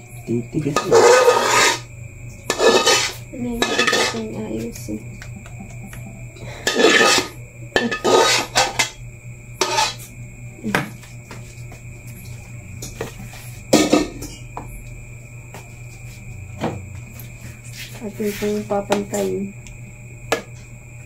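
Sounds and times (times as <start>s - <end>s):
metal spoon scraping pot: 0.7s - 4.3s, 6.6s - 9.0s, 9.6s - 10.0s.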